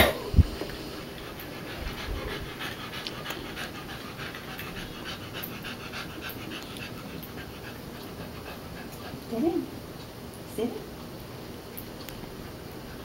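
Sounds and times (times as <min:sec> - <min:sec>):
dog panting: 0:01.0 - 0:09.7.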